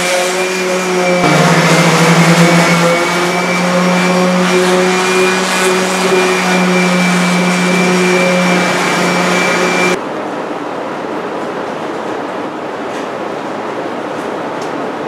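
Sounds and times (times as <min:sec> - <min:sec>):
electric motor running: 0:00.0 - 0:10.0.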